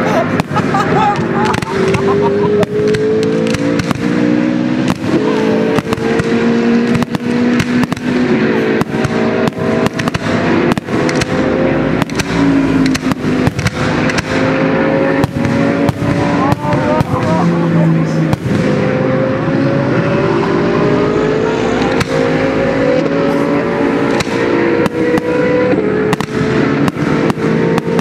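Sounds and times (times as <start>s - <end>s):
race car engines: 0.0s - 28.0s
fireworks bangs: 0.1s - 19.0s, 26.1s - 28.0s.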